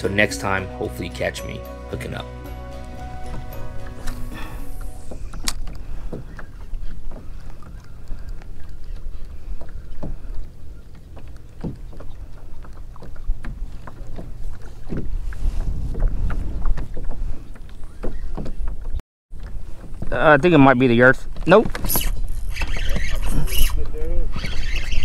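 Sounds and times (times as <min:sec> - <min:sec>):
waves lapping against hull: 0:03.4 - 0:20.2
wind buffeting microphone: 0:05.0 - 0:19.0.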